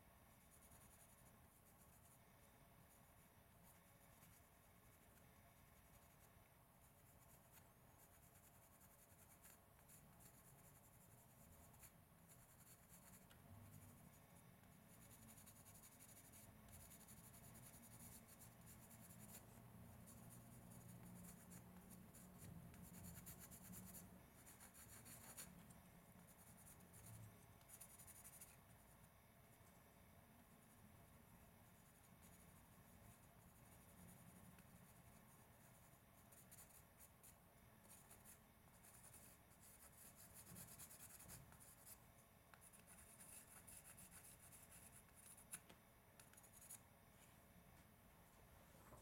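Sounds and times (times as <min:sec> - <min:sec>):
faint low hum: 0:00.0 - 0:49.0
pencil scratching on wood: 0:02.9 - 0:28.8, 0:31.6 - 0:46.8.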